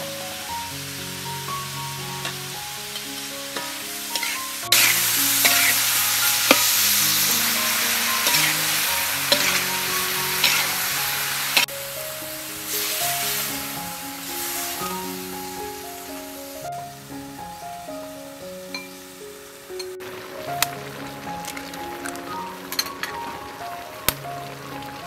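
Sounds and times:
food sizzling in a wok: 0.0s - 25.0s
soft background music: 0.0s - 25.0s
metal spatula scraping a pan: 3.6s - 6.8s, 7.7s - 10.8s.

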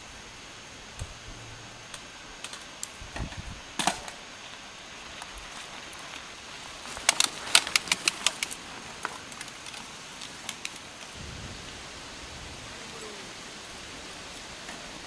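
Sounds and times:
steady hiss: 0.0s - 15.0s
bike clicks and snaps: 1.8s - 11.1s.

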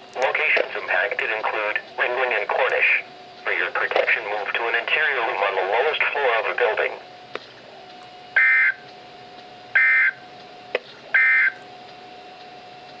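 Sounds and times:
faint steady hum: 0.0s - 13.0s
harsh digital data tones: 8.4s - 8.8s, 9.8s - 10.2s, 11.1s - 11.6s.

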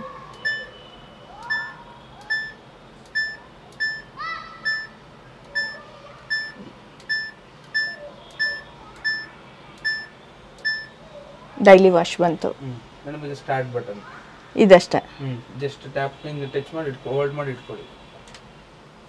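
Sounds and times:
washing machine electronic beeps: 0.0s - 11.0s.

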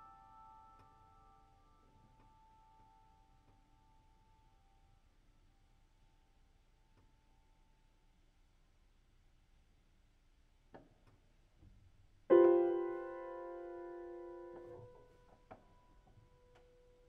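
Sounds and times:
grand piano chord: 12.3s - 15.1s
single piano note ringing: 12.3s - 15.1s.

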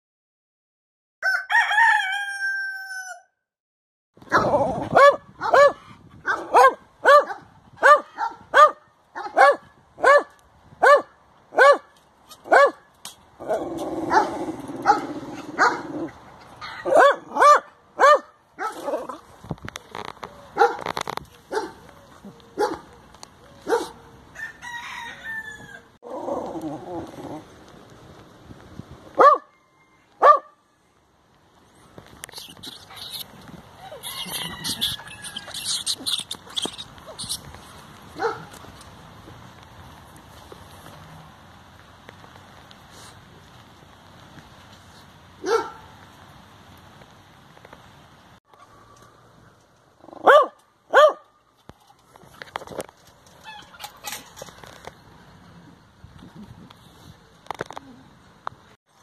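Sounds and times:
rooster crowing: 1.2s - 3.4s, 24.3s - 26.0s, 29.5s - 30.3s, 33.9s - 35.8s
small dog barking: 4.3s - 12.8s, 14.1s - 16.0s, 16.6s - 19.2s, 20.5s - 20.9s, 21.5s - 21.9s, 22.6s - 23.0s, 23.6s - 24.1s, 29.2s - 29.5s, 30.2s - 30.6s, 38.2s - 38.5s, 45.4s - 45.9s, 50.2s - 51.3s.

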